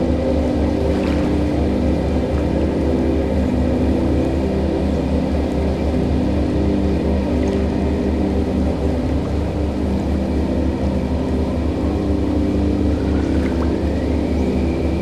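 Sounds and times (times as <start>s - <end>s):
deep pulsing rumble: 0.0s - 15.0s
low droning tones: 0.0s - 15.0s
stream water rushing: 0.0s - 15.0s.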